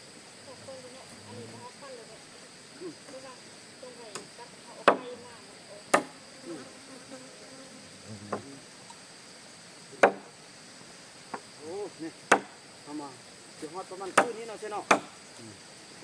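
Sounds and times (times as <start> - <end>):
high insect drone: 0.0 - 16.0
sharp knocks: 10.0 - 10.3, 12.3 - 12.6, 14.9 - 15.1.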